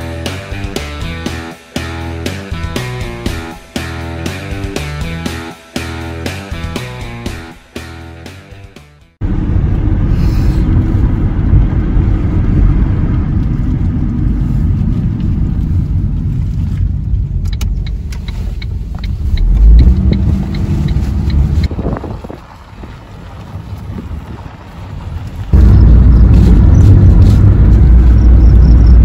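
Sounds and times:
car road and engine rumble: 6.0 - 29.0
regular ticking: 17.4 - 21.7.

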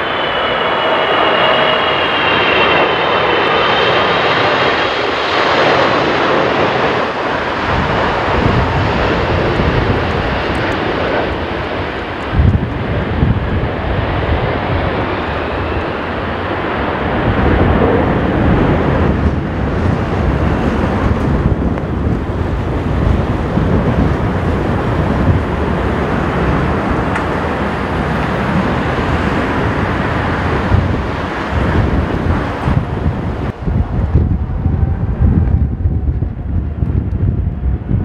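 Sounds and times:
jet engines at high thrust: 0.0 - 38.0
wind buffeting microphone: 0.0 - 38.0.

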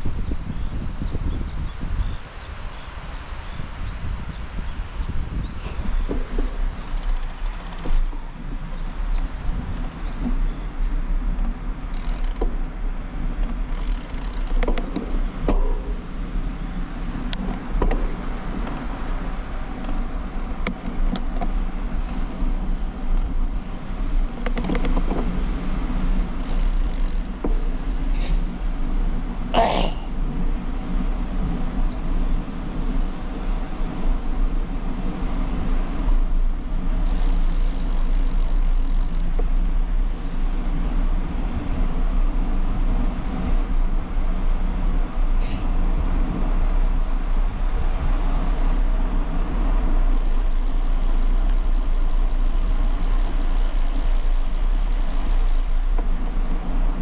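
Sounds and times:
tyre and road noise: 0.0 - 57.0
wind rumble on microphone: 0.0 - 57.0
bike clicks and rattles: 5.6 - 16.4, 17.0 - 28.4, 32.2 - 42.5, 49.6 - 57.0.

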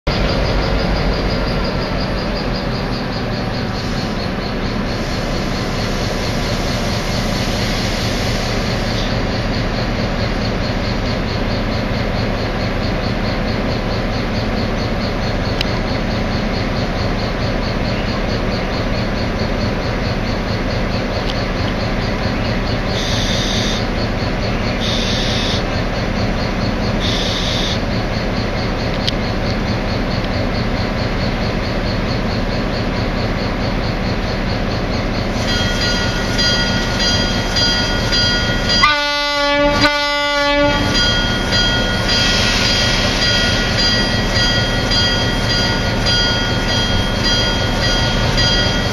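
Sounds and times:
diesel locomotive running: 0.0 - 48.9
short high-pitched squeals: 22.9 - 23.9, 24.8 - 25.7, 27.0 - 27.8, 35.3 - 48.9.

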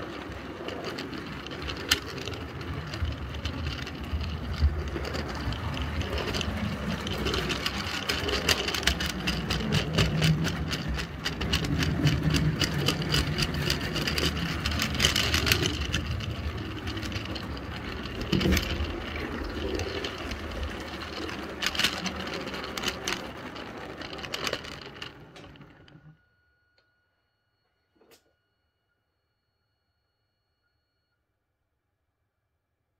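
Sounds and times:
model train rumbling and rattling: 0.0 - 26.1
wheels clicking rapidly: 0.0 - 26.1.

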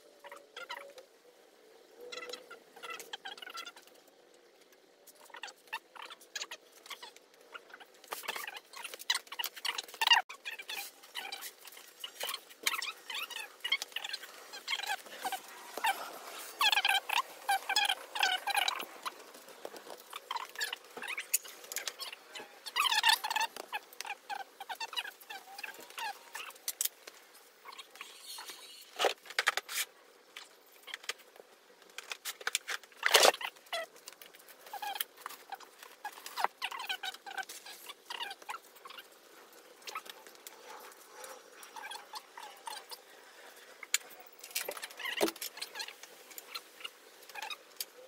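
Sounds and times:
short squeaks: 27.7 - 29.8.

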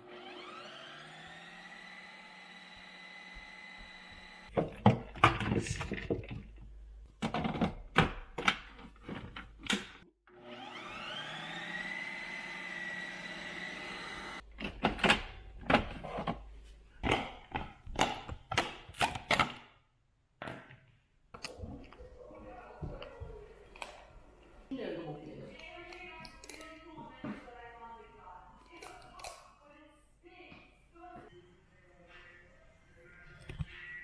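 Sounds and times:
motor whine: 0.0 - 4.5, 10.3 - 14.4
ice cream maker motor knocking: 0.0 - 4.6, 10.6 - 14.4.

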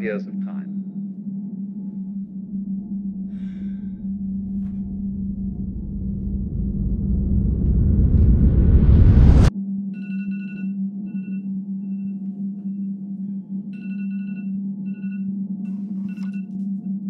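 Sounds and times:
low drone: 0.0 - 9.5
phone alarm chime: 10.0 - 12.2, 13.8 - 15.3.

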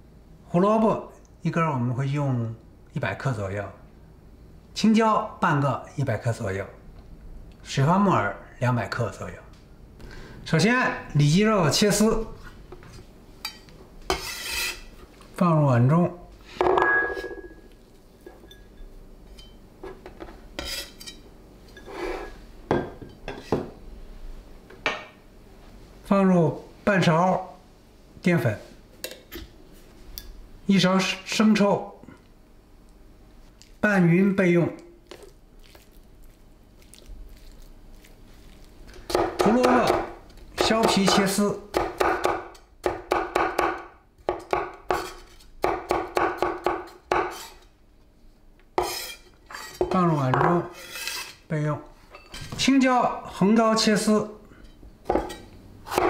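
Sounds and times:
bowl sliding on wooden board: 21.8 - 22.4
cleaver chopping on wooden board: 39.1 - 47.4.

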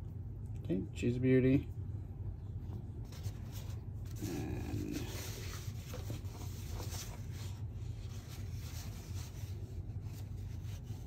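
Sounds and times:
steady low hum: 0.0 - 11.0
paper packaging rustling: 3.1 - 11.0.

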